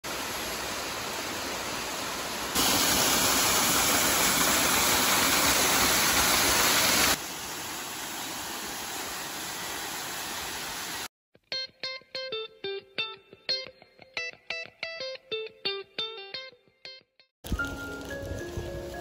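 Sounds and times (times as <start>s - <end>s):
waterfall splashing onto rocks: 0.1s - 11.1s.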